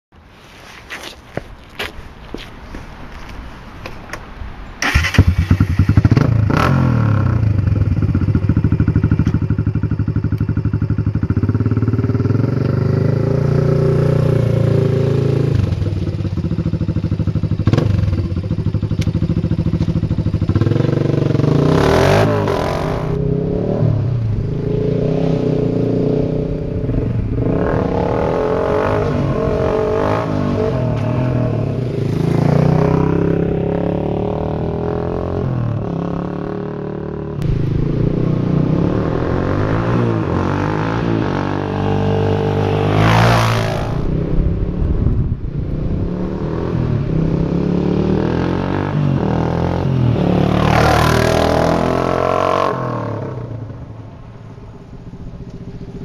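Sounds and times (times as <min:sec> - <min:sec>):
atv engine idling and revving: 0:04.8 - 0:56.0.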